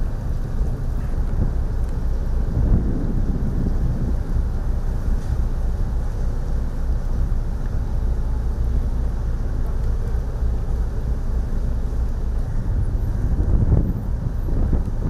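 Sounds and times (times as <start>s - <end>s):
wind buffeting microphone: 0.0s - 7.4s, 11.2s - 15.0s
ship engines rumbling: 0.0s - 15.0s.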